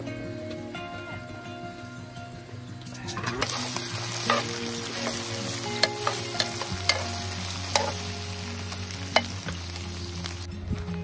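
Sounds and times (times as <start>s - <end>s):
food sizzling in a pan: 3.4s - 10.5s
utensil scraping and clicking on pan: 4.2s - 8.0s.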